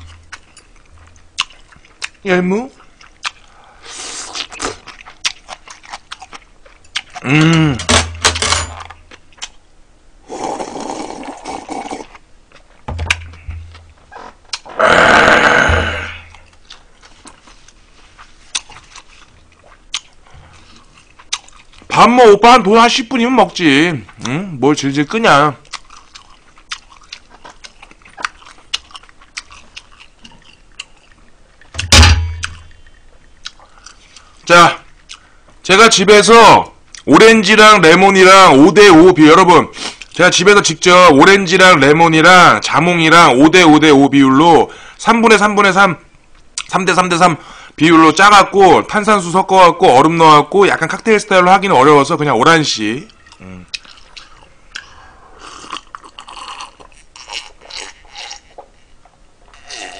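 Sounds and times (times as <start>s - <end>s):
person chewing with mouth clicks: 0.0s - 7.8s, 9.1s - 9.6s, 10.8s - 14.8s, 15.8s - 21.9s, 24.1s - 24.4s, 25.6s - 31.4s, 32.4s - 34.4s, 35.0s - 35.3s, 53.1s - 58.8s
person humming: 7.2s - 7.8s
slurping broth: 10.3s - 12.2s.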